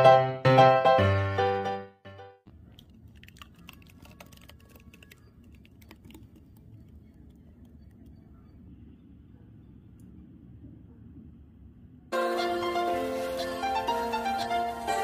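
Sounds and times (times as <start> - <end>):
chutney dripping into bowl: 2.8 - 8.3.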